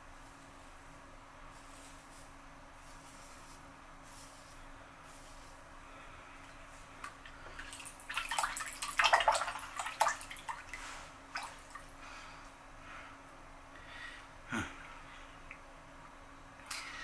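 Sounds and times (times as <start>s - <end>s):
water splashing and dripping: 7.0s - 11.9s.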